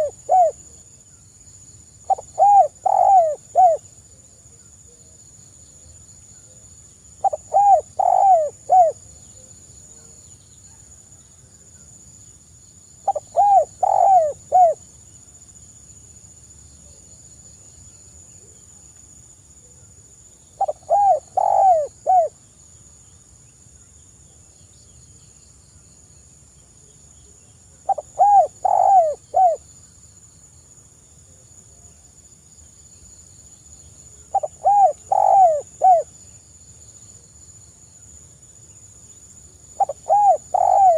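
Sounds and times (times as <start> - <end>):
dove cooing: 0.0 - 0.6, 2.1 - 3.8, 7.2 - 9.0, 13.0 - 14.8, 20.6 - 22.3, 27.9 - 29.6, 34.3 - 36.1, 39.8 - 40.9.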